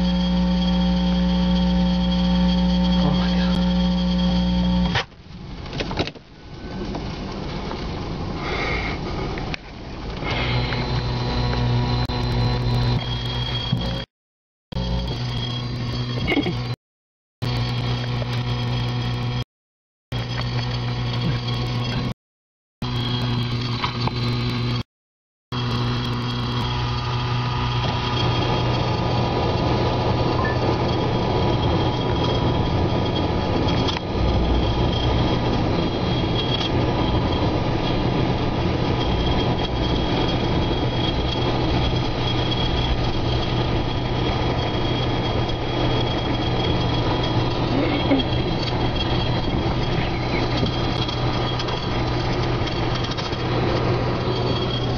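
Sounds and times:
constant low hum: 0:00.0 - 0:14.1, 0:14.7 - 0:16.8, 0:17.4 - 0:19.4, 0:20.1 - 0:22.2, 0:22.8 - 0:24.8, 0:25.5 - 0:54.9
rushing storm wind: 0:26.1 - 0:54.9.

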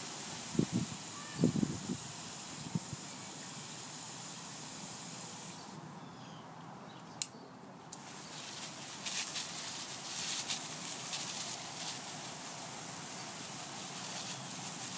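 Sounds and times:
water spraying: 0:00.0 - 0:05.8, 0:08.0 - 0:14.9
sharp click: 0:07.0 - 0:08.0.

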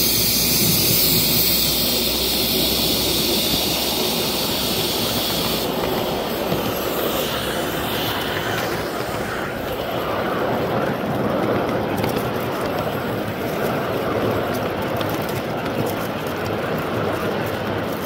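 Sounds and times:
model steam locomotive running: 0:00.0 - 0:18.0.

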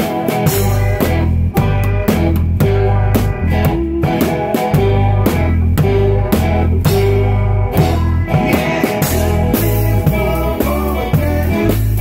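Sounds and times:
live band playing blues: 0:00.0 - 0:12.0.

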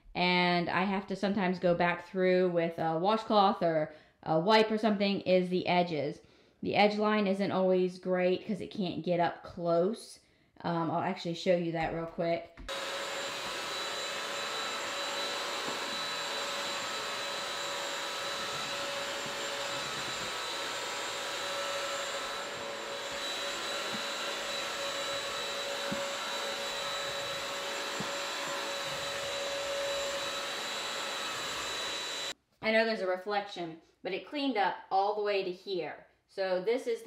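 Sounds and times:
vacuum mop running: 0:12.7 - 0:32.4.

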